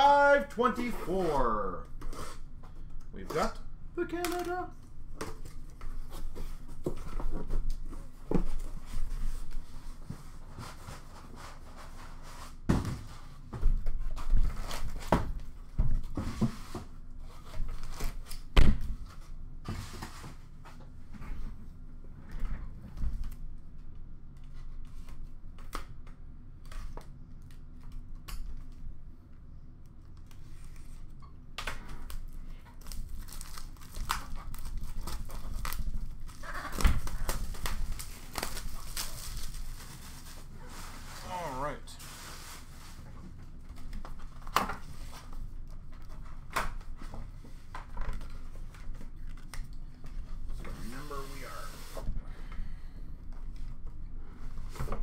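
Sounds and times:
shrink wrap crinkling: 32.0 - 41.4.

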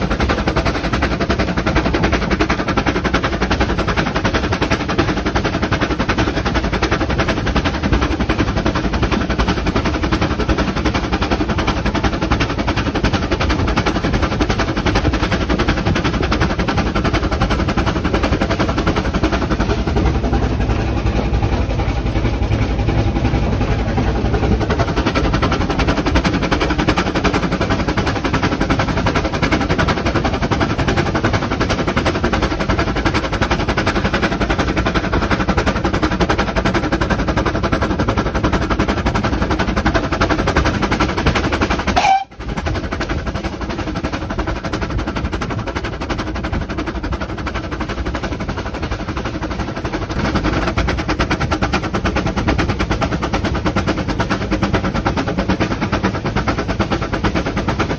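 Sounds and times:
steam locomotive rattle and clatter: 0.0 - 57.9.

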